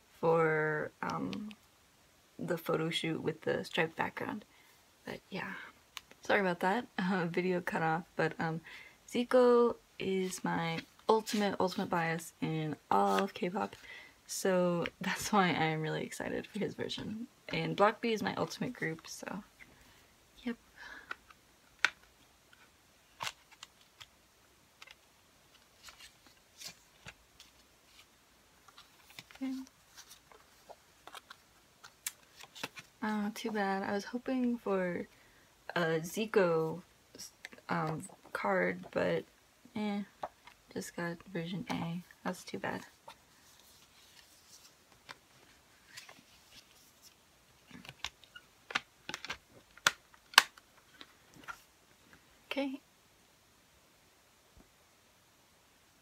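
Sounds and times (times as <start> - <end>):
paper inserts rustling: 24.8 - 33.5, 42.8 - 51.7.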